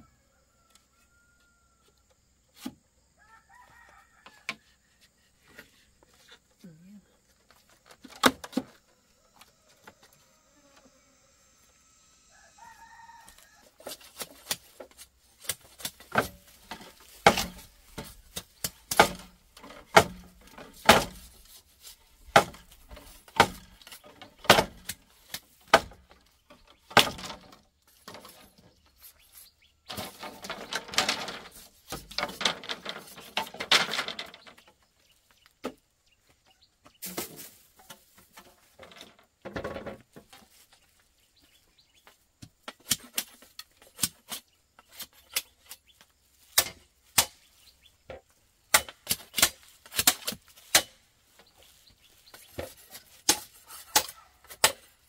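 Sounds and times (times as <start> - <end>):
scraping and rustling: 13.2 - 35.6, 36.9 - 48.3, 48.9 - 55.0
hard objects clicking and knocking: 29.9 - 34.8.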